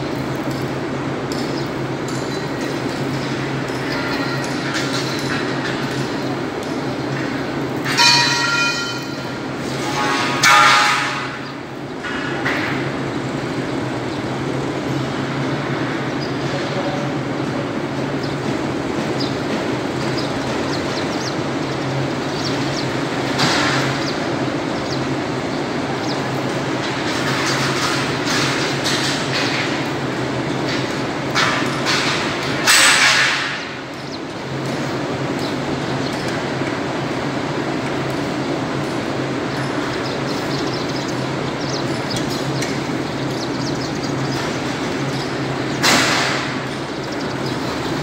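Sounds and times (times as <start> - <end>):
noisy background: 0.0 - 48.0.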